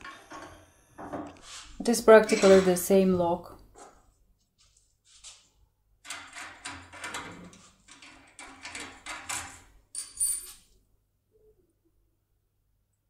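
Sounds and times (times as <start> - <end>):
metal tools scraping and rattling: 2.1 - 3.0.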